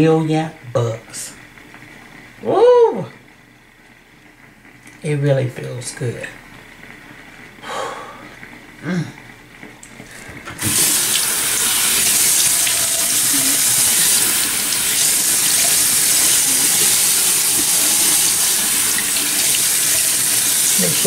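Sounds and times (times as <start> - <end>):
faucet water splashing into basin: 10.6 - 21.0.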